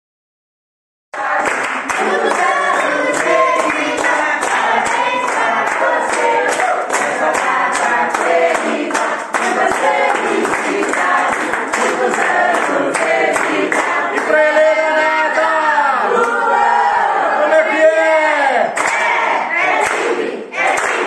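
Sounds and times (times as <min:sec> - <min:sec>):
group singing: 0:01.1 - 0:21.0
rhythmic hand-clapping: 0:01.2 - 0:14.7, 0:18.6 - 0:21.0.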